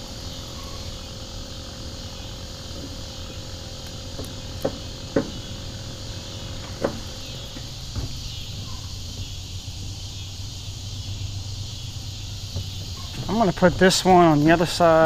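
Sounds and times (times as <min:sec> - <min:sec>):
insects shrilling: 0:00.0 - 0:15.0
sharp knocks: 0:04.2 - 0:05.5, 0:06.6 - 0:09.3.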